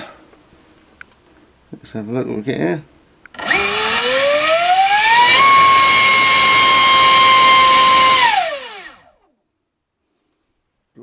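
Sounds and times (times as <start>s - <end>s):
electric motor and propeller whine: 3.4s - 9.2s.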